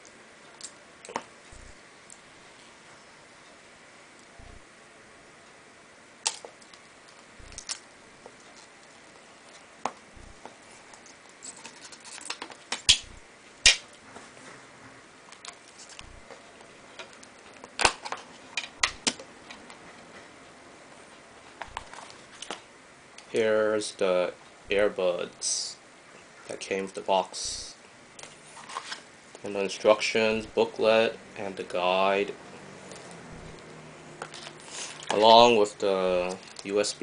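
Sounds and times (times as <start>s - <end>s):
plastic packaging crinkling: 36.2s - 36.8s.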